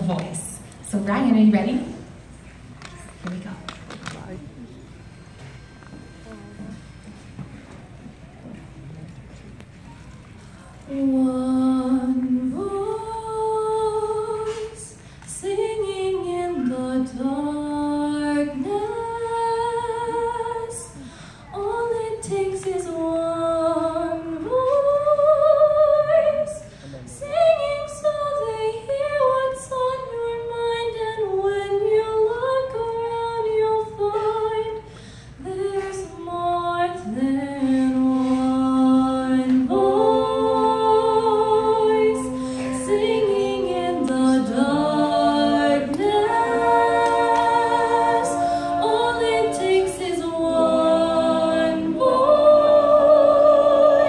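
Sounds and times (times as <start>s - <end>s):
voices singing harmony: 10.9s - 26.6s, 35.5s - 54.0s.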